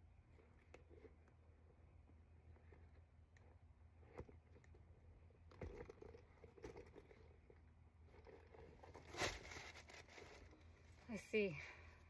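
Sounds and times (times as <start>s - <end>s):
faint rustling: 0.0s - 12.0s
handbag handling noise: 2.7s - 10.7s.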